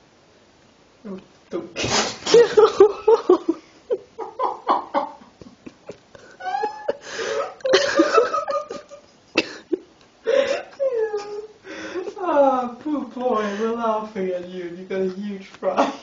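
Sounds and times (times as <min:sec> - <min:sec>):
people laughing: 0:02.3 - 0:09.8.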